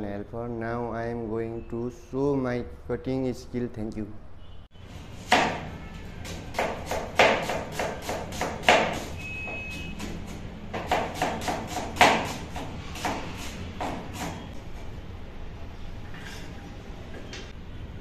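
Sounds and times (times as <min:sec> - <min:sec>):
knife chopping on cutting board: 0:05.2 - 0:14.5.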